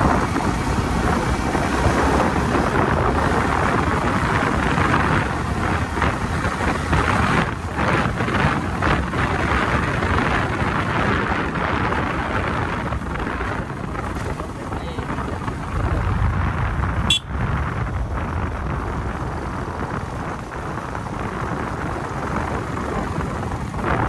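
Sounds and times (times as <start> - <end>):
motorcycle engine running: 0.0 - 24.0
road noise: 0.0 - 24.0
wind rushing over microphone: 0.0 - 24.0.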